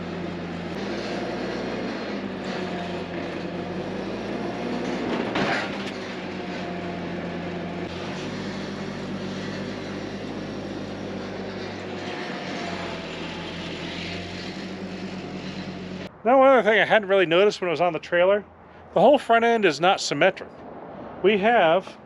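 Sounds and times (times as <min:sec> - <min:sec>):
forklift engine running: 0:00.0 - 0:16.2.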